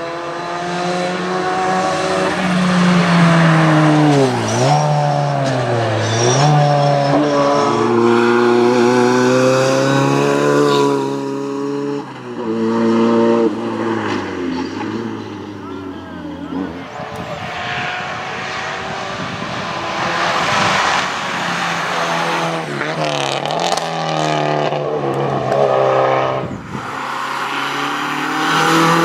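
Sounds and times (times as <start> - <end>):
rally car engine at full throttle: 0.0 - 29.0.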